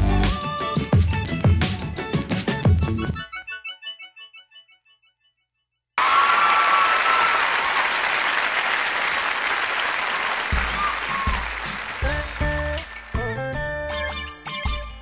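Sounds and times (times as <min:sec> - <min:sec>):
audience applauding: 0:06.0 - 0:13.4.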